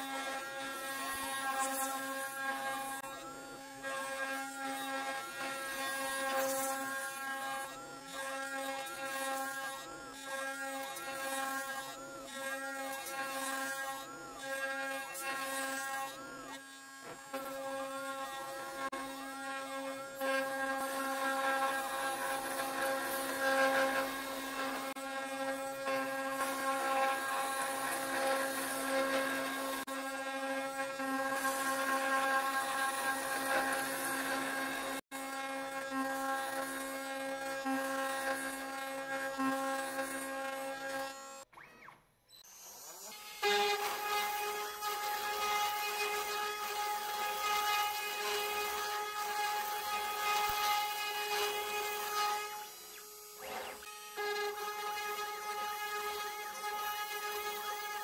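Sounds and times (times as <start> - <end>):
router spindle cutting wood: 0.0 - 58.0.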